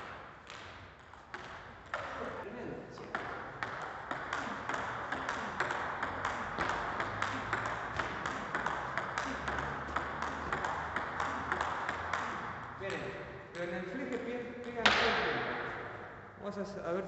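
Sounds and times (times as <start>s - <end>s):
table tennis ball clicking: 3.1s - 15.1s.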